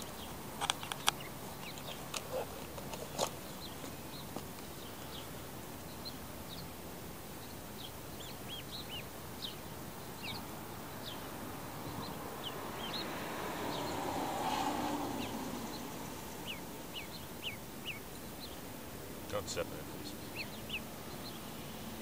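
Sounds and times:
steady background noise: 0.0 - 22.0
ducklings peeping: 7.4 - 13.1, 13.7 - 18.7, 19.3 - 21.6.

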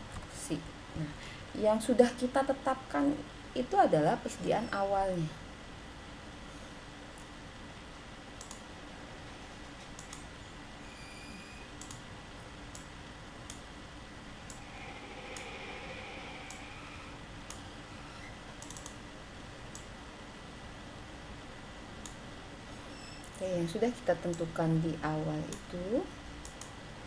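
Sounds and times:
faint room hiss: 0.0 - 27.0
computer mouse clicks: 8.4 - 8.7, 9.8 - 10.3, 11.8 - 12.0, 14.5 - 15.7, 16.5 - 16.7, 18.5 - 19.0, 26.4 - 26.8.

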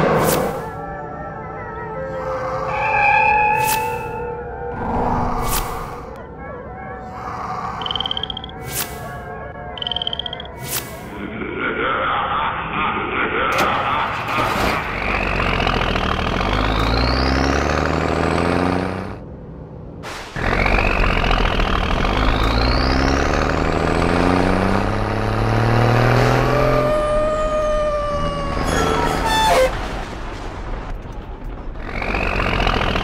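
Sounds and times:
falling whistle: 2.7 - 4.4
cartoon truck engine revving: 13.6 - 19.3, 20.1 - 29.9, 31.8 - 33.0.

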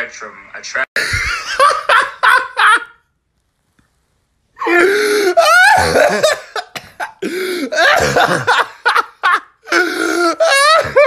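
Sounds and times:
man laughing hard: 1.0 - 3.0, 4.6 - 11.0.

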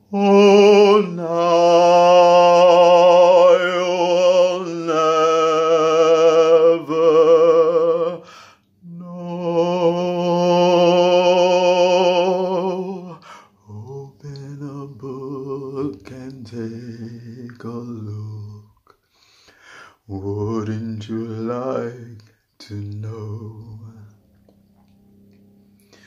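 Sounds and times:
man singing with vibrato: 0.0 - 18.8, 19.5 - 24.2.

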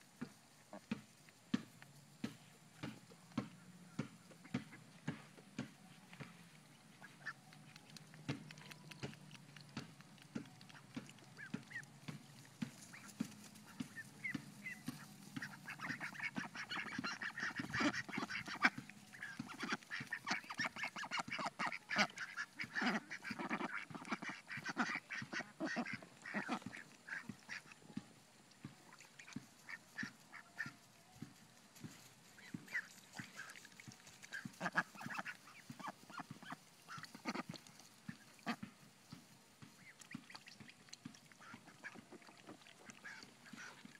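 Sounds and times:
young ducks quacking: 6.6 - 28.0, 28.6 - 30.8, 32.3 - 38.9, 39.8 - 43.9.

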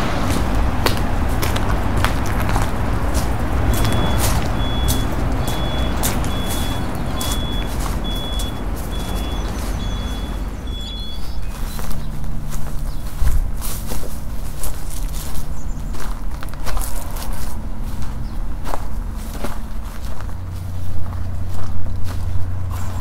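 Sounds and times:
engine rumble: 0.0 - 23.0
vehicle backup alarm beeping: 1.7 - 12.2.

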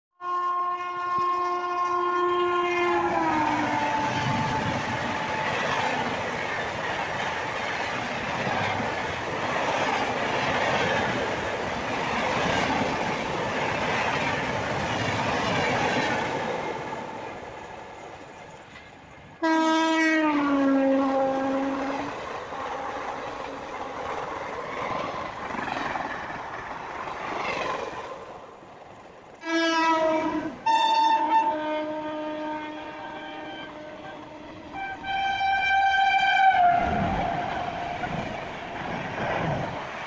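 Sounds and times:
train horn: 0.2 - 5.8, 19.4 - 22.2, 29.4 - 38.2
train coaches rumbling past: 0.3 - 40.0.

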